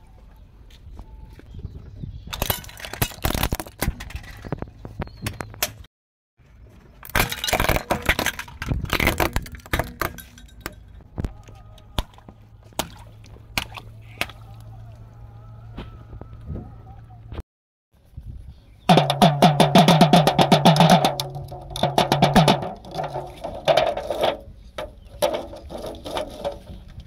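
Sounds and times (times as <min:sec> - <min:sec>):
plastic toys cracking under tyre: 0:02.3 - 0:04.7, 0:07.0 - 0:10.2.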